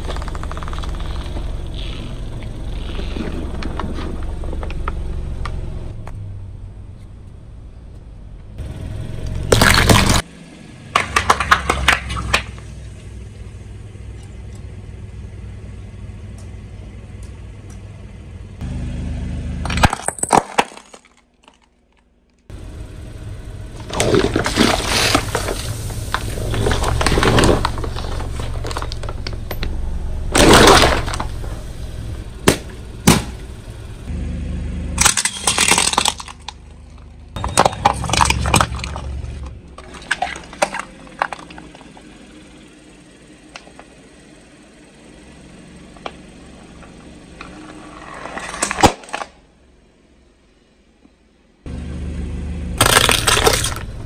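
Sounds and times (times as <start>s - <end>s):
car rumble: 0.0s - 54.0s
tyre crushing crunchy objects: 9.5s - 10.3s, 23.8s - 29.7s, 30.3s - 31.6s, 35.0s - 42.1s, 52.8s - 54.0s.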